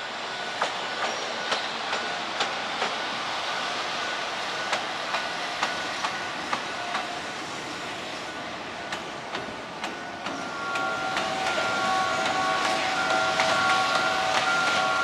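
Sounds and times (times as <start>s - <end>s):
locomotive running rumble: 0.0s - 15.0s
steady high-pitched tones: 0.0s - 15.0s
train wheels clicking over rail joints: 0.4s - 3.1s, 4.6s - 7.2s, 8.9s - 15.0s.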